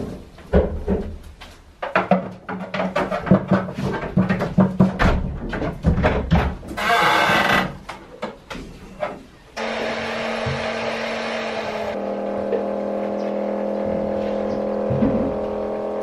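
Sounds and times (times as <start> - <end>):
vacuum pump humming and hissing: 9.6 - 16.0.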